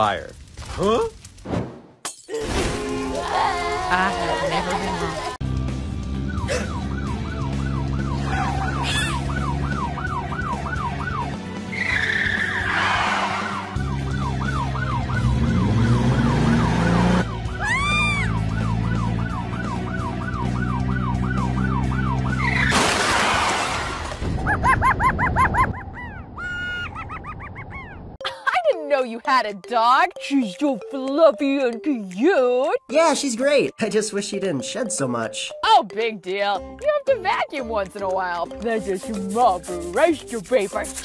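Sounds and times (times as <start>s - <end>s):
police siren yelping: 6.2s - 11.4s, 13.4s - 22.7s
tyre screech: 11.7s - 13.7s.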